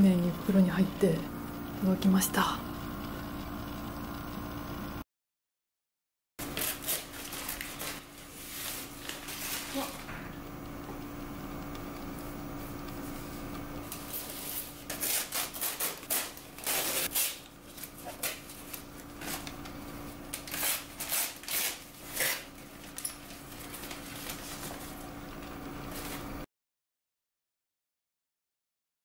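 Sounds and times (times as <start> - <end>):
paper crinkling and rustling: 6.4 - 10.2, 13.9 - 26.3.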